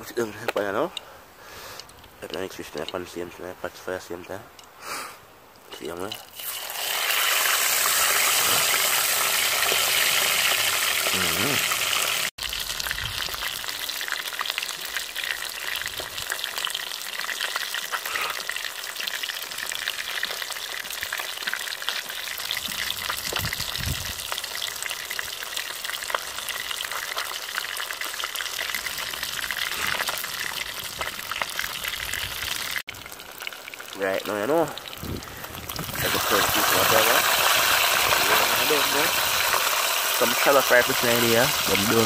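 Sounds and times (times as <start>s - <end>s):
fish sizzling in hot oil: 6.2s - 42.0s.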